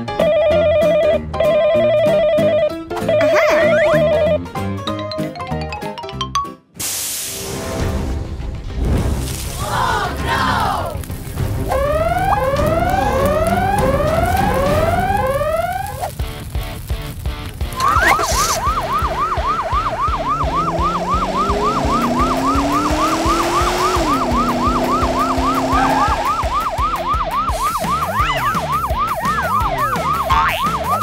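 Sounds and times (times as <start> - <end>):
electronic siren yelping: 0.4 - 4.4, 11.7 - 16.2, 17.8 - 31.0
low rising tone: 11.1 - 16.1, 17.8 - 27.1.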